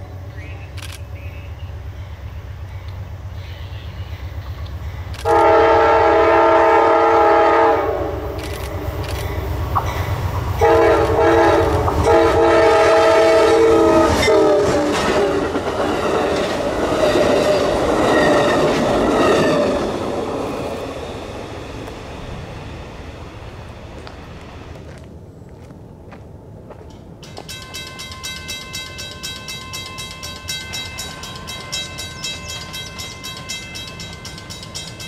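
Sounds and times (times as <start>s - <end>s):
train wheels rumbling on rail: 0.0s - 35.0s
train air horn blasts: 5.2s - 8.4s, 10.6s - 15.5s.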